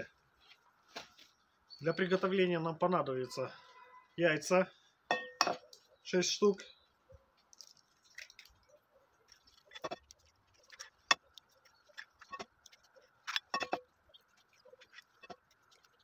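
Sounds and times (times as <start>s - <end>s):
eggshells crackling: 7.4s - 16.0s.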